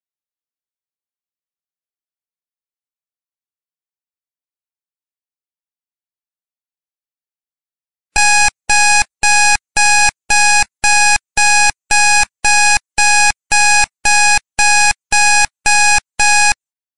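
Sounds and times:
timer alarm beeping: 8.2s - 16.6s.

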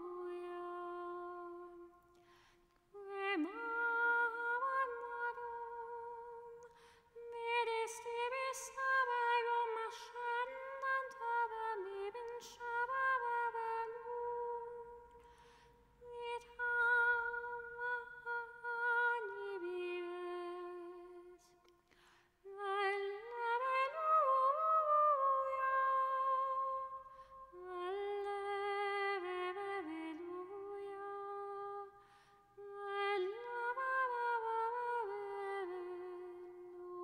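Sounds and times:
woman singing chant unaccompanied: 0.0s - 2.0s, 3.0s - 15.0s, 16.0s - 21.6s, 22.5s - 32.0s, 32.6s - 37.0s.

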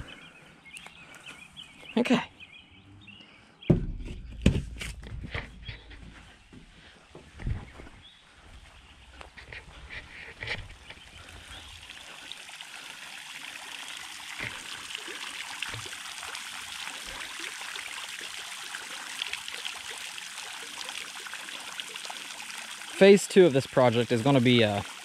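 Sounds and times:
low thumps: 3.7s - 8.0s
fountain water splashing on pond: 10.7s - 25.0s.

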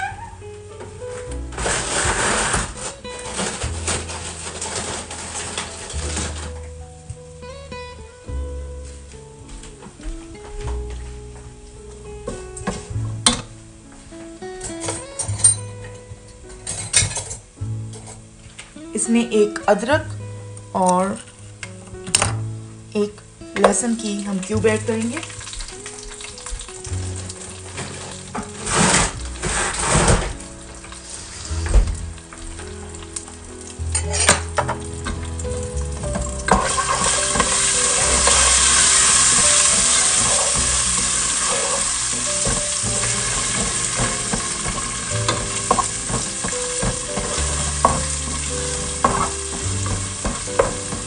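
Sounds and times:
wooden spatula scraping a pot: 1.5s - 6.6s, 24.6s - 31.7s, 34.0s - 51.0s
onions sizzling in oil: 22.5s - 51.0s.

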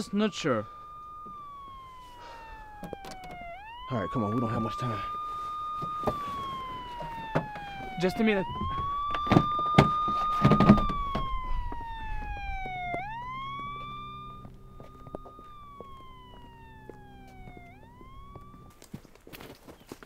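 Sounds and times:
police siren wailing: 0.0s - 19.0s
knocks and thumps: 8.5s - 11.8s.

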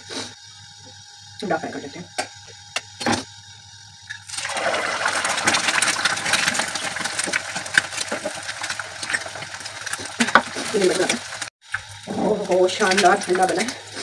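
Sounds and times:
egg sizzling in hot oil: 3.4s - 14.0s.

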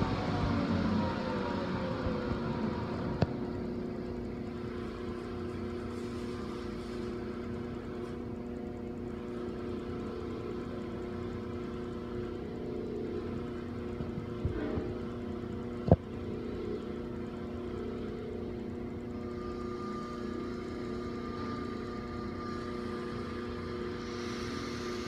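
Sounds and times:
hand torch hissing: 22.4s - 25.0s.

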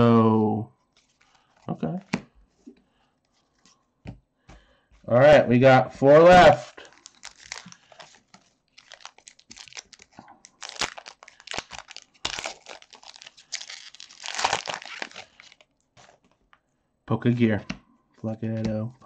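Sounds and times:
foil wrapper tearing and crinkling: 6.8s - 16.3s.

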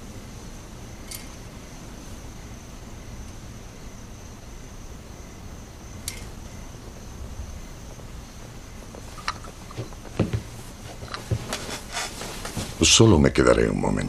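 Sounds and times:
light knocks and clicks: 9.2s - 11.8s.

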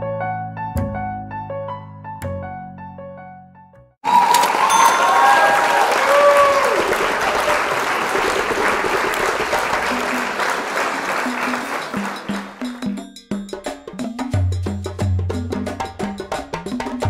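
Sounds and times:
background music with low notes: 0.0s - 3.9s
crowd applause: 4.0s - 12.8s
crowd cheering: 4.0s - 12.8s.

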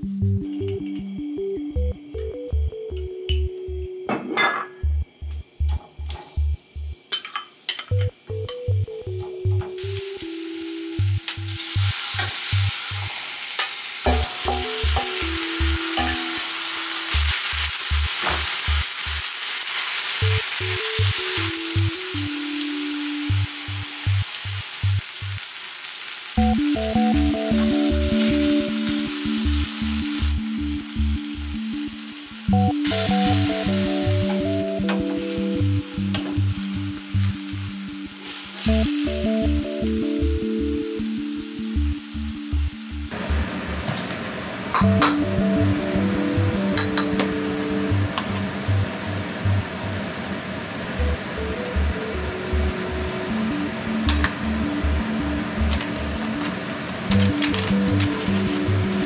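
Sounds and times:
background music with bouncing bass: 0.0s - 7.0s, 7.9s - 12.8s, 14.1s - 19.2s, 20.2s - 25.1s, 26.4s - 43.8s, 44.8s - 49.6s, 51.0s - 56.5s, 57.1s - 59.0s
meat sizzling in a frying pan: 9.8s - 26.4s, 27.2s - 39.2s.

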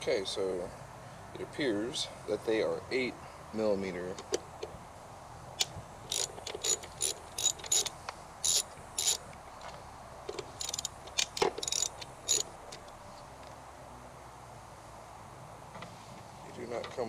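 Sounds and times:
ratchet wrench clicking: 5.6s - 9.2s, 10.3s - 13.0s.

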